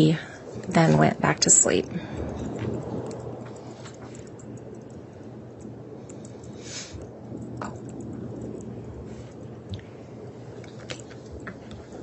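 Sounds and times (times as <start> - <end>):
microphone hiss and hum: 0.0 - 12.0
faint clicks: 2.2 - 8.7.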